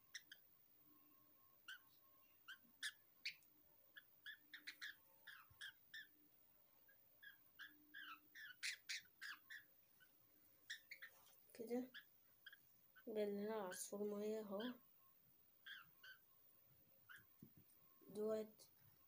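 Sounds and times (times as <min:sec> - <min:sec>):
lovebird squawking: 0:00.1 - 0:00.4, 0:02.5 - 0:03.4, 0:04.0 - 0:06.1, 0:07.2 - 0:09.7, 0:10.6 - 0:11.2, 0:15.6 - 0:16.2.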